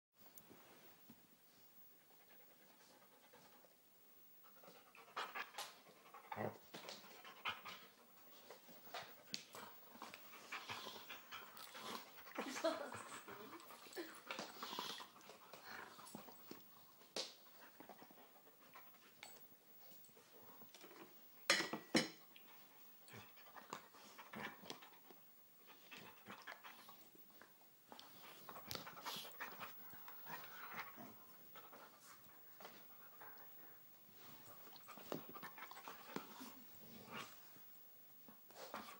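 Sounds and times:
dogs panting and huffing: 0:04.5 - 0:16.7.

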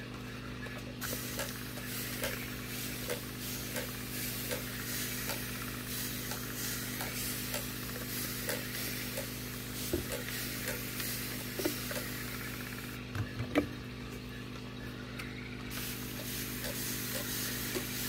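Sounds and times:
steady low hum: 0:00.0 - 0:18.0
bubbles fizzing in water: 0:00.9 - 0:13.0, 0:15.6 - 0:18.0.

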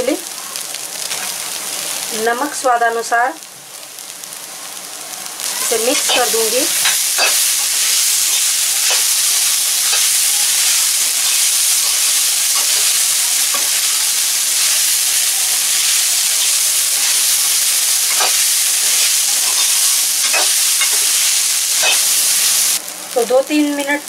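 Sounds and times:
food sizzling in a pan: 0:00.0 - 0:24.0
metal spatula scraping a pan: 0:05.4 - 0:14.0, 0:14.6 - 0:22.5.

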